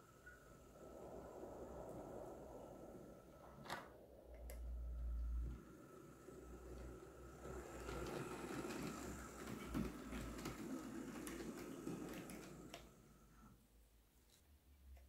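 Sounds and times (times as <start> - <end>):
wheels rumbling on rail: 4.7 - 13.4
model train motor whine: 5.6 - 13.2.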